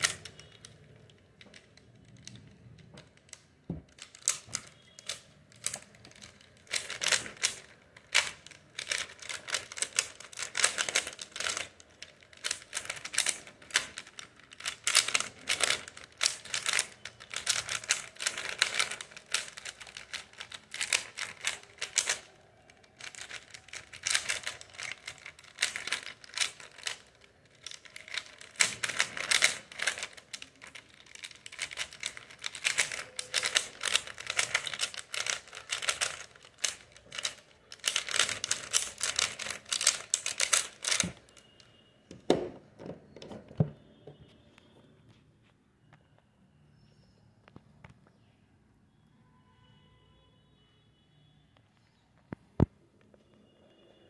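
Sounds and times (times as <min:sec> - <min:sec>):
puzzle cube clicking turns: 0:00.0 - 0:41.6.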